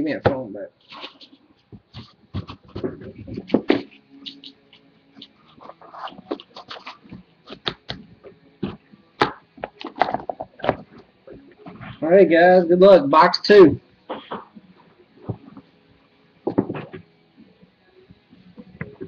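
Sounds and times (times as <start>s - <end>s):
boxes knocking on table: 16.4s - 17.0s.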